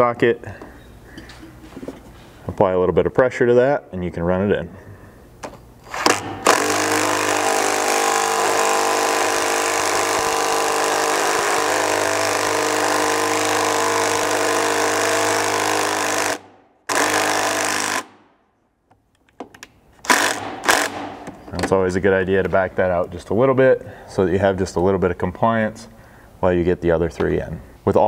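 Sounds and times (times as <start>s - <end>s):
impact driver rattling: 5.9s - 18.2s, 20.0s - 21.5s.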